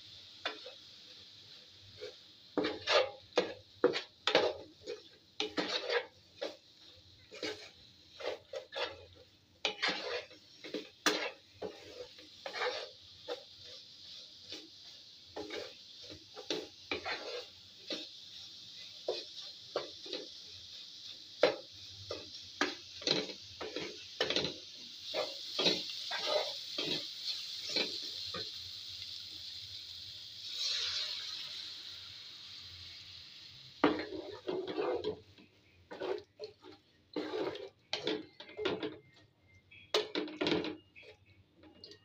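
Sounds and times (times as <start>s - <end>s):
water hissing in hot pan: 0.0s - 39.1s
chicken sizzling: 0.0s - 42.0s
wooden spatula scraping a pan: 1.8s - 28.5s, 30.4s - 31.1s, 33.8s - 42.0s.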